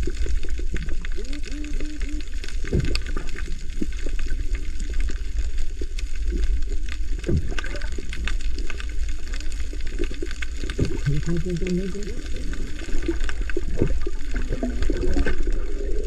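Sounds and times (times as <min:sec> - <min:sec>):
sharp clicks and crackles: 0:00.0 - 0:16.0
underwater water rushing and bubbling: 0:00.0 - 0:16.0
heavy low rumble: 0:05.9 - 0:16.0.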